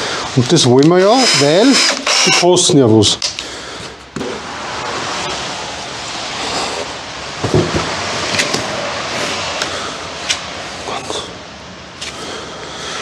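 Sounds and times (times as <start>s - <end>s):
knocks on wooden workbench: 7.4s - 7.9s.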